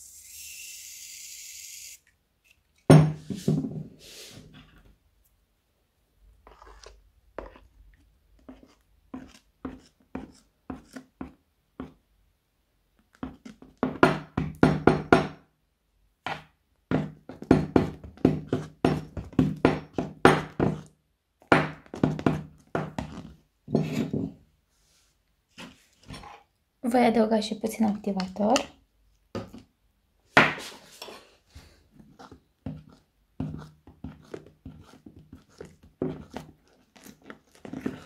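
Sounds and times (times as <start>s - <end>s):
metal spoon scraping plastic cup: 6.4s - 7.8s, 30.7s - 31.4s, 32.0s - 38.0s.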